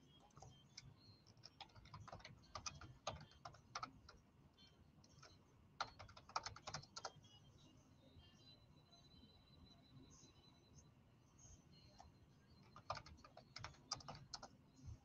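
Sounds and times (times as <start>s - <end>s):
typing on computer keyboard: 0.2s - 4.2s, 5.1s - 7.2s, 12.0s - 14.6s.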